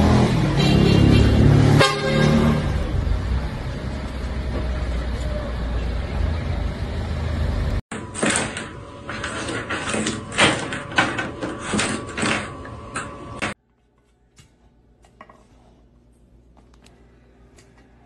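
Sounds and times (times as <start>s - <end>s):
street traffic rumble: 0.0s - 7.8s.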